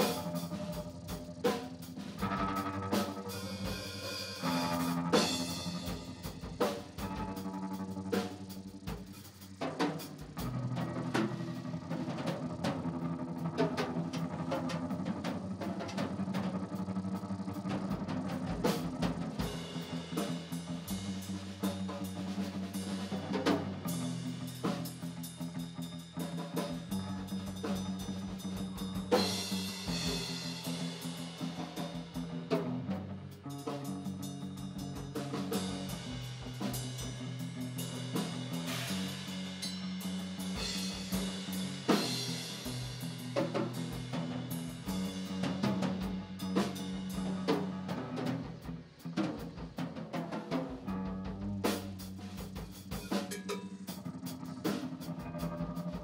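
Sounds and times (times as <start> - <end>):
electric guitar chords: 0.0 - 8.9.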